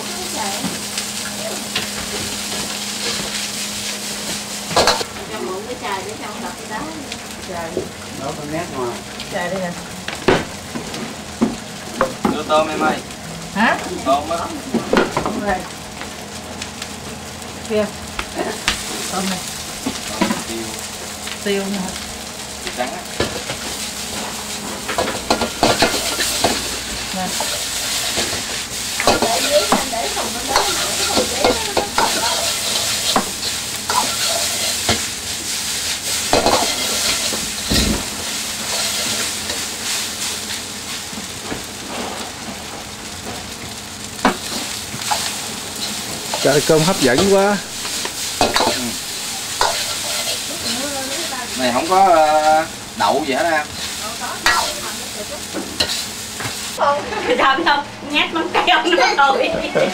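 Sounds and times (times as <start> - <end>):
food sizzling in a wok: 0.0 - 59.9
spatula scraping a wok: 23.6 - 41.0, 44.2 - 52.7, 53.4 - 56.8.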